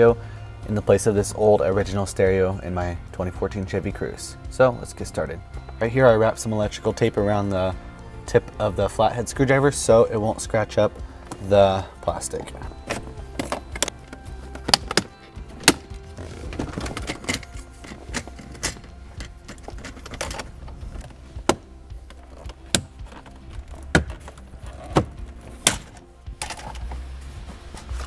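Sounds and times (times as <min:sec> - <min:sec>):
background music: 0:00.0 - 0:28.0.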